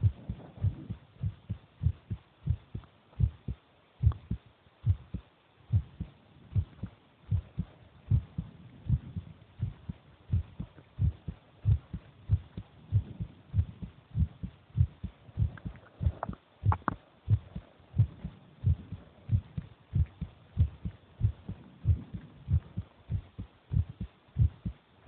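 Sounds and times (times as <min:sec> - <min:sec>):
heartbeat thumps: 0:00.0 - 0:24.8
sharp clicks: 0:15.4 - 0:17.6.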